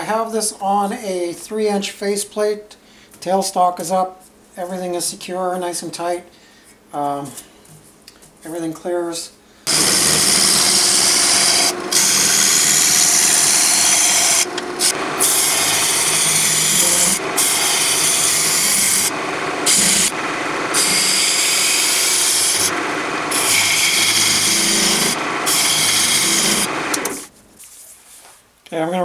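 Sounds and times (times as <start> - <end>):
lathe gouge scraping wood: 9.7 - 27.3.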